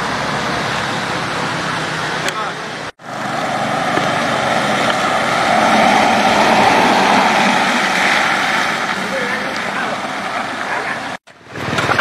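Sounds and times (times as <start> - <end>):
car driving past on wet road: 3.0 - 11.2.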